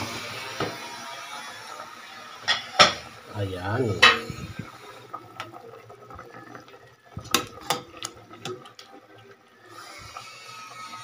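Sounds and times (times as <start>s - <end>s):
liquid sloshing in a pot: 2.4s - 11.0s.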